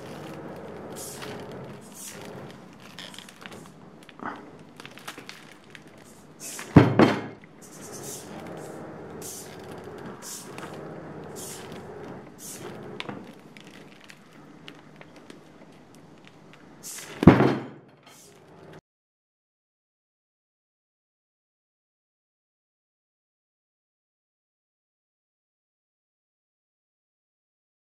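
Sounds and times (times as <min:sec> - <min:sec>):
faint steady hum: 0:00.0 - 0:17.2
short hissy bursts: 0:01.0 - 0:02.5, 0:06.0 - 0:06.8, 0:07.6 - 0:13.0, 0:16.8 - 0:17.3
heavy thud: 0:06.4 - 0:07.4.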